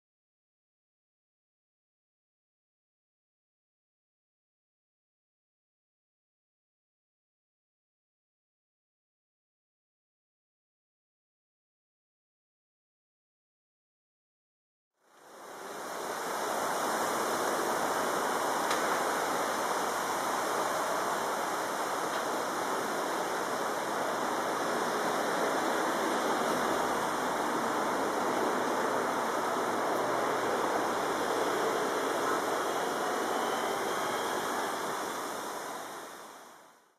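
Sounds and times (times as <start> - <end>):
motorway traffic roar: 15.6 - 36.6.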